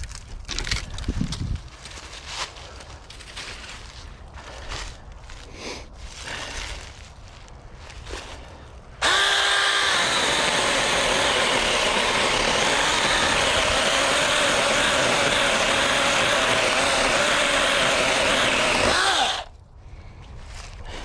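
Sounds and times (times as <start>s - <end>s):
chainsaw sawing wood: 9.0s - 19.5s.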